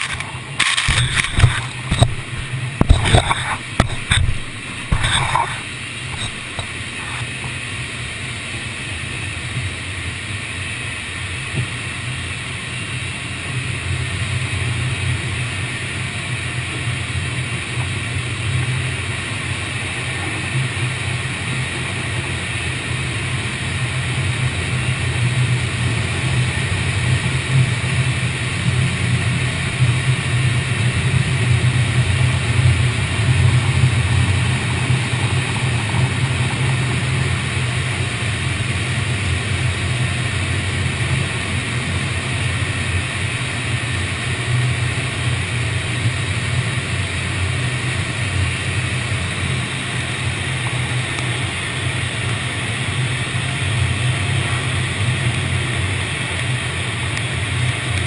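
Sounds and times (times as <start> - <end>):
car wash rumble and hiss: 0.0 - 58.0.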